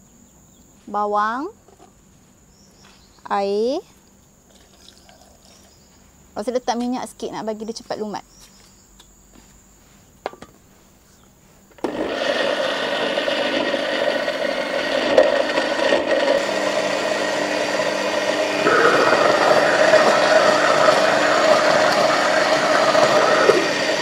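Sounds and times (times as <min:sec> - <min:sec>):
electric blender grinding: 0:11.7 - 0:24.0.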